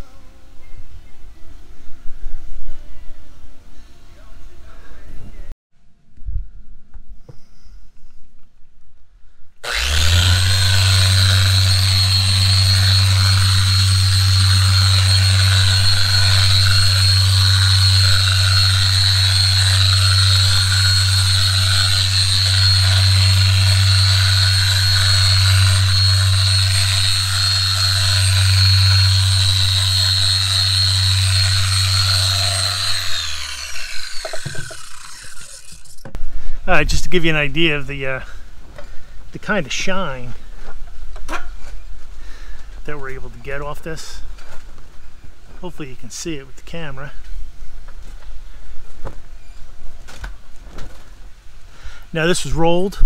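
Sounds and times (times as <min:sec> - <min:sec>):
electric polisher whining: 0:09.6 - 0:36.0.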